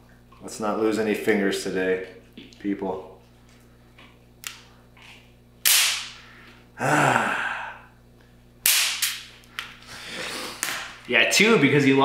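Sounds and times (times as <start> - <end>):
electric fly swatter snapping: 4.4 - 4.7, 5.6 - 6.2, 8.6 - 9.8, 10.6 - 11.0
man exhaling in pain: 6.8 - 8.0.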